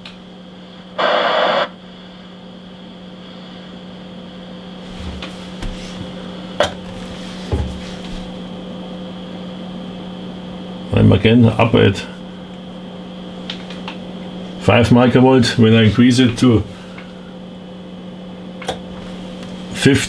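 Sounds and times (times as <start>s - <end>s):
steady electrical hum: 0.0s - 20.0s
receiver hiss: 0.5s - 4.8s.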